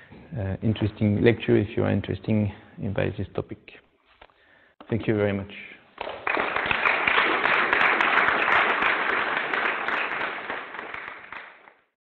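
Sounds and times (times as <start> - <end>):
audience applauding: 6.0 - 11.9.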